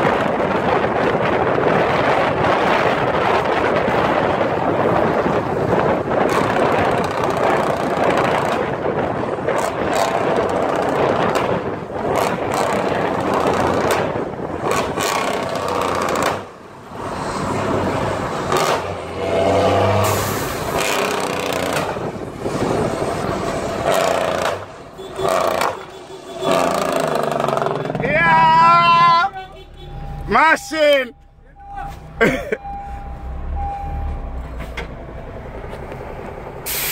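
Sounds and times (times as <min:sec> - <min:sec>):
wind noise: 0:00.0 - 0:24.9
diesel truck engine under load: 0:00.0 - 0:28.5, 0:29.8 - 0:36.9
road noise: 0:00.0 - 0:36.9.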